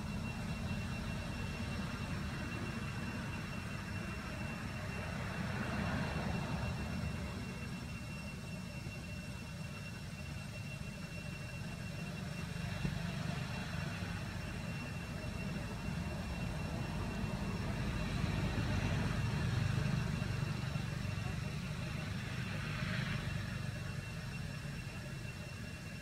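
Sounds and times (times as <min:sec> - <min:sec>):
faint high whine: 0:00.0 - 0:26.0.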